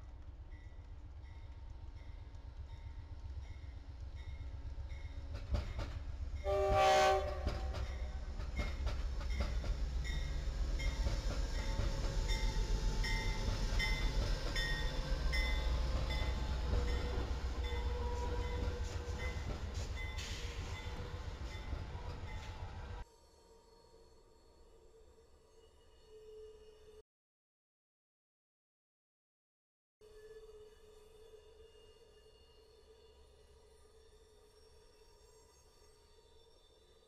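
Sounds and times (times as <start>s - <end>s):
train rumbling on rails: 0.0s - 23.0s
train horn blast: 6.4s - 8.3s, 16.6s - 19.5s.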